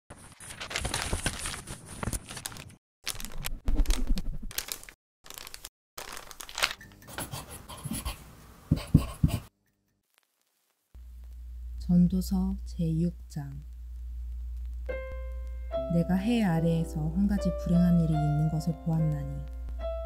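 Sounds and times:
paper crinkling and tearing: 0.1 - 7.0.

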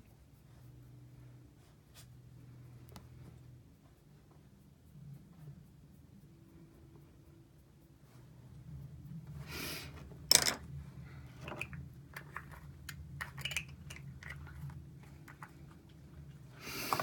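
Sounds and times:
low steady hum: 0.0 - 17.0
small clicks and rustling: 11.3 - 17.0.

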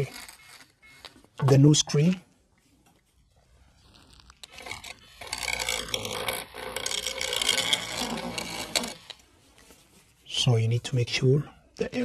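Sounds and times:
tool scraping adhesive: 3.9 - 9.2.

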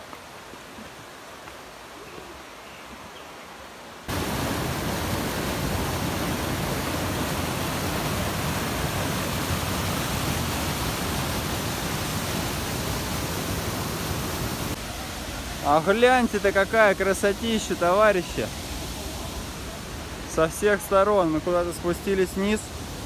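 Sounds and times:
water rushing over rocks: 4.0 - 23.0.

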